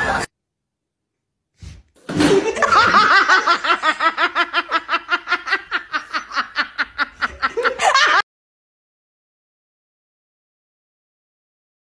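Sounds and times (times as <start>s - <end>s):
person laughing: 2.2s - 8.2s.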